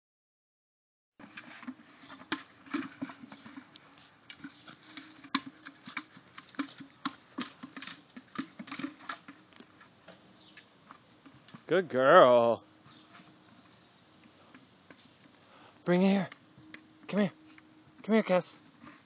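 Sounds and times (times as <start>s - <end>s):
plastic bucket bumping and scraping: 1.2s - 10.2s
puppy running through grass: 2.9s - 8.4s.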